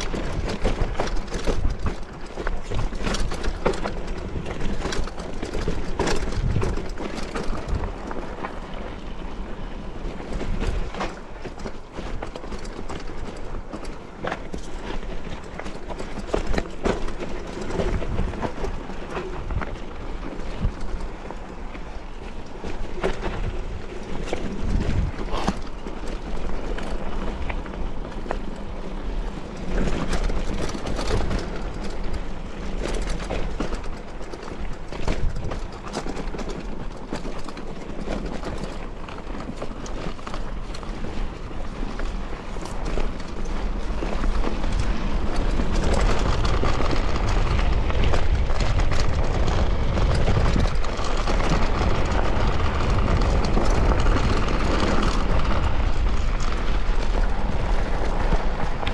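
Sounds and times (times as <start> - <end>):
wind rushing over microphone: 0.0 - 11.3, 16.1 - 58.9
bike rattles and knocks: 0.0 - 58.9
steady low rumble: 17.1 - 36.2.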